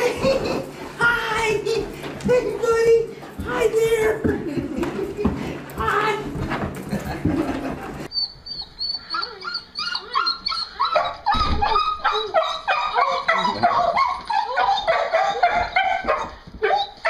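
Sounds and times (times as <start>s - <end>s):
dog whining and yelping: 8.1s - 17.0s.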